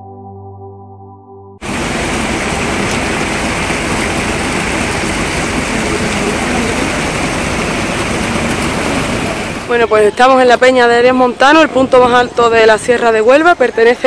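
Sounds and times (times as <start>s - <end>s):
water splashing over rocks: 1.6s - 10.3s.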